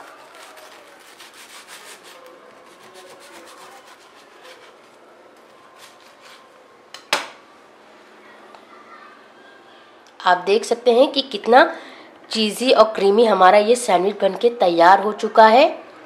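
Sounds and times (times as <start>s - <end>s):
knife sawing through toasted bread: 0.0s - 6.5s.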